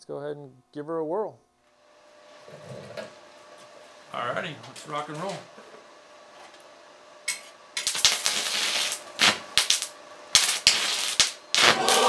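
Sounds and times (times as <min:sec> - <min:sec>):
welding arc crackling and sizzling: 0:07.2 - 0:12.0.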